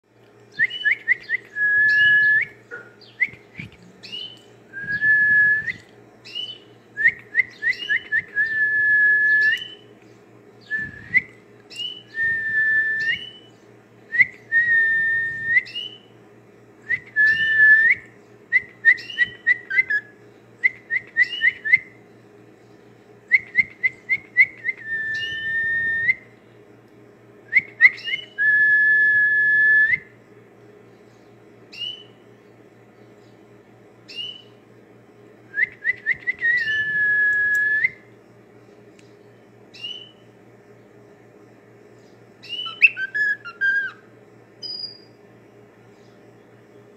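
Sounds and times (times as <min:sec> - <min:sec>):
cockatiel whistling a tune: 0:00.6 - 0:02.6, 0:18.6 - 0:21.9, 0:23.3 - 0:26.2, 0:27.5 - 0:30.1, 0:35.6 - 0:38.0, 0:42.4 - 0:44.0, 0:44.6 - 0:45.1.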